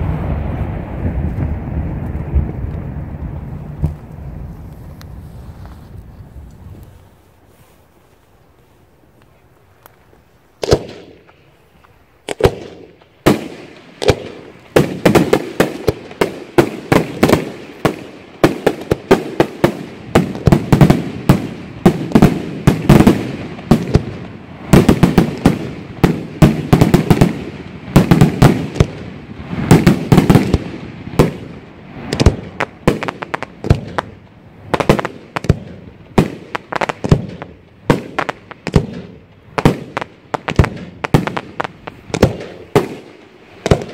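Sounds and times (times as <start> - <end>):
firework shells bursting: 10.6 - 43.9.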